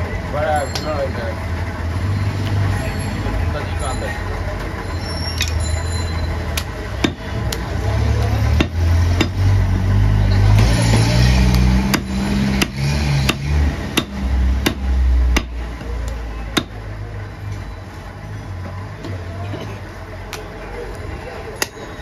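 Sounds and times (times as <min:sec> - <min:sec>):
cleaver chopping on wooden block: 0:07.0 - 0:07.6, 0:08.6 - 0:09.4, 0:11.5 - 0:15.6, 0:16.6 - 0:16.8.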